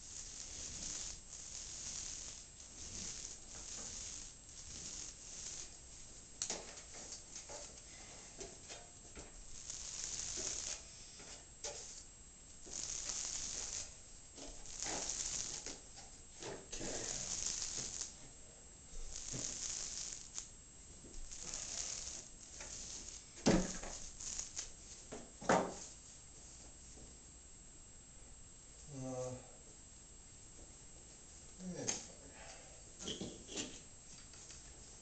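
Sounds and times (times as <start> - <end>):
paint roller rolling on ceiling: 0.0 - 27.0.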